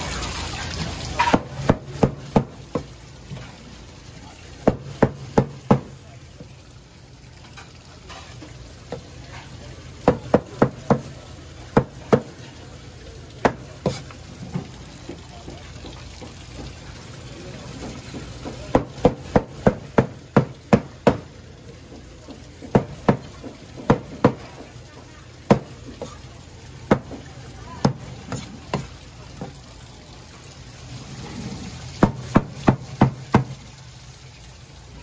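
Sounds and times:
knife chopping on cutting board: 13.5 - 14.0.

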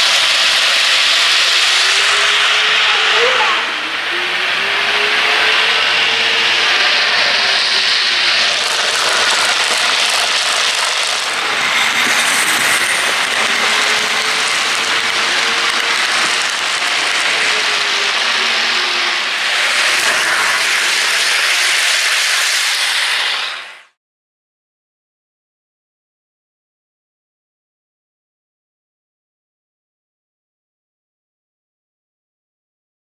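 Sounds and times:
motor whine: 0.0 - 23.2
model train wheels on rails: 0.0 - 24.0.

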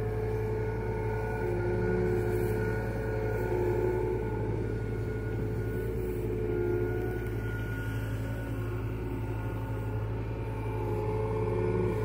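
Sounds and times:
hydraulic whine: 0.0 - 12.0.

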